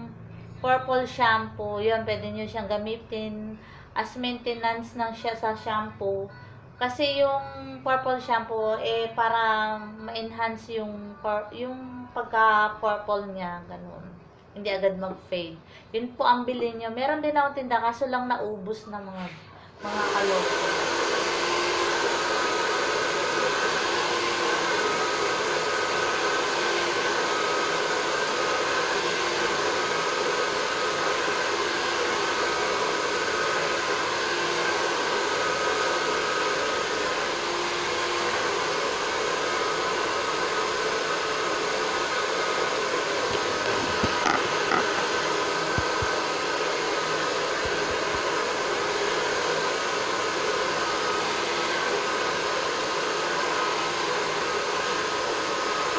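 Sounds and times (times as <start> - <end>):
hair dryer blowing: 19.2 - 55.9.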